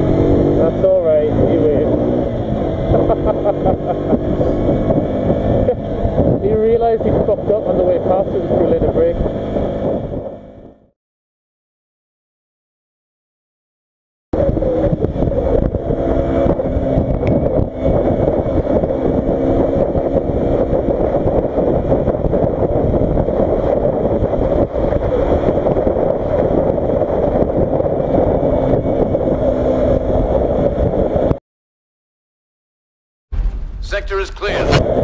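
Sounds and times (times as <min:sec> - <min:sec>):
motorcycle engine cruising: 0:00.0 - 0:10.9, 0:14.4 - 0:31.4
wind rush on microphone: 0:00.0 - 0:10.9, 0:14.3 - 0:31.4, 0:33.4 - 0:35.0.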